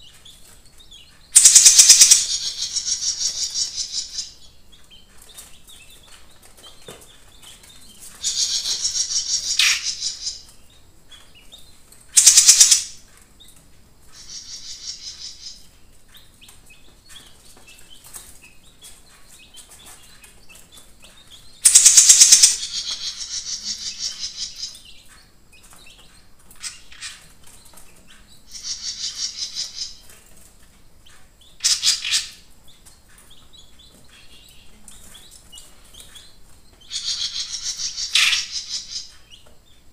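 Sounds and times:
songbird singing high trills: 0:01.3 - 0:04.4, 0:08.2 - 0:10.4, 0:12.2 - 0:13.0, 0:14.2 - 0:15.6, 0:21.6 - 0:24.8, 0:28.5 - 0:30.0, 0:36.8 - 0:39.1.

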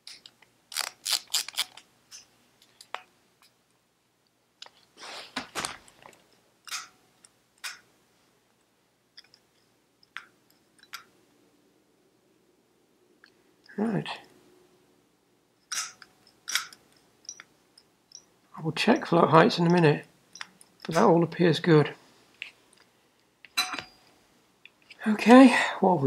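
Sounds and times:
small metal parts clicking: 0:00.0 - 0:03.0, 0:06.0 - 0:07.8, 0:15.6 - 0:18.3, 0:19.0 - 0:21.1.

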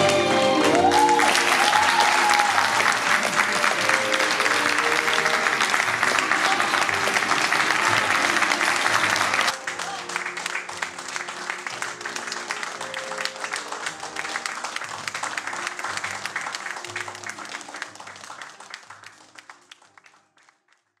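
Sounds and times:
audience applauding: 0:00.0 - 0:21.0.

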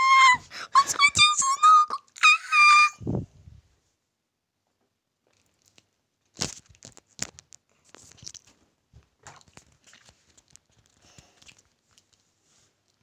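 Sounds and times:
soft rustling: 0:06.4 - 0:13.0.

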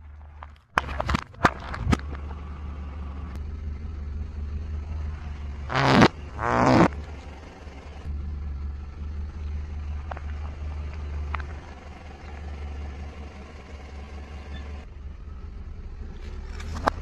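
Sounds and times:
car engine rumbling: 0:00.0 - 0:17.0
whoopee cushion blast: 0:05.7 - 0:06.9
faint clicks: 0:09.4 - 0:12.4.

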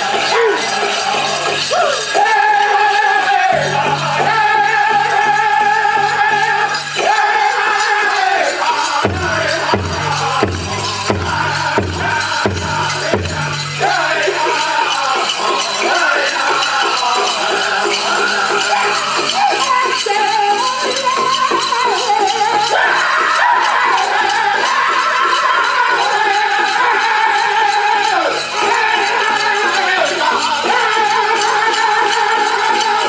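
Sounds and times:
ankle bells jingling: 0:00.0 - 0:33.0
drum group singing: 0:00.0 - 0:33.0
big drum beating: 0:09.0 - 0:14.4.

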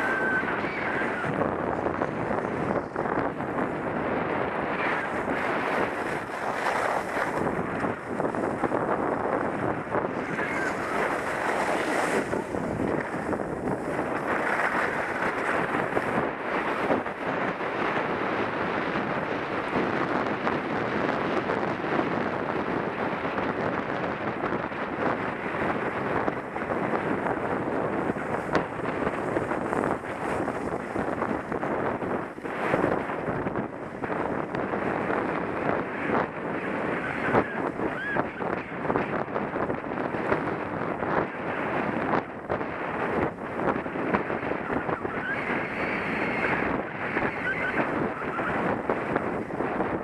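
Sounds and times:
skis scraping over snow: 0:00.0 - 0:20.1, 0:25.4 - 0:42.0
wind buffeting microphone: 0:00.0 - 0:50.0.

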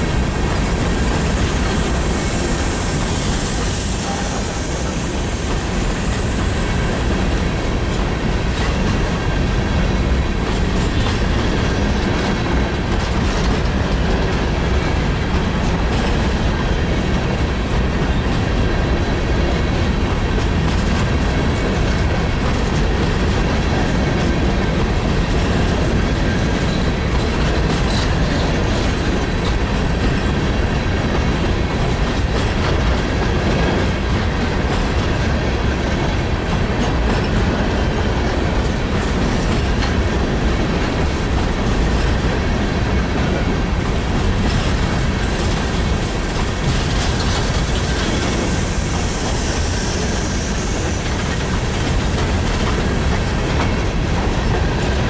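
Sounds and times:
high hiss: 0:00.0 - 0:09.6, 0:45.1 - 0:54.4
freight train rumbling past: 0:00.0 - 0:55.0
wheels clacking over rail joints: 0:00.0 - 0:55.0.

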